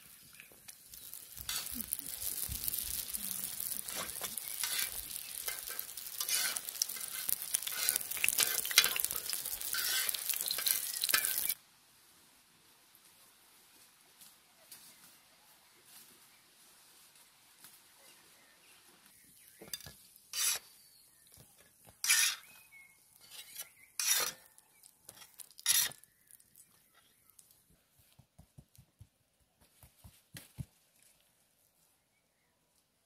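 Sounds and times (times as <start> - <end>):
sizzling: 0.0 - 11.6, 19.6 - 21.0, 21.8 - 27.6
metal spatula scraping griddle: 1.1 - 11.6, 19.8 - 20.7, 22.0 - 22.6, 23.2 - 26.1.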